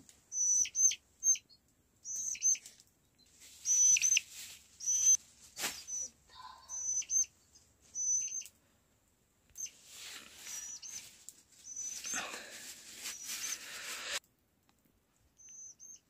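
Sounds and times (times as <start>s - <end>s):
chicks peeping: 0.3s - 2.7s, 3.6s - 4.2s, 4.8s - 5.2s, 5.8s - 7.3s, 8.0s - 8.5s, 10.4s - 12.1s
noisy hiss: 3.3s - 14.3s.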